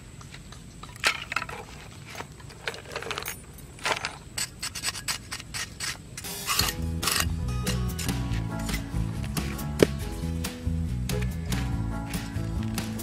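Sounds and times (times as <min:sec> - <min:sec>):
knife blade scraping sand: 0:04.3 - 0:09.5.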